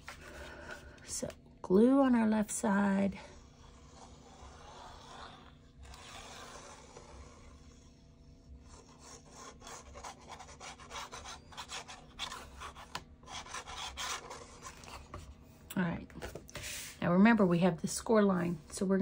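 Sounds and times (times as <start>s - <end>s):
cardstock rubbing and rasping: 3.3s - 8.0s, 8.6s - 15.2s.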